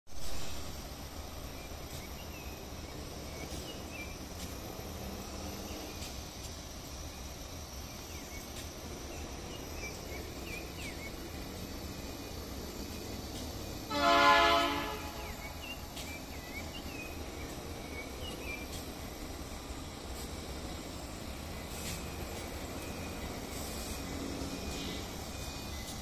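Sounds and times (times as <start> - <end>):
train rumble: 0.1 - 26.0
locomotive air horn blast: 13.9 - 15.4.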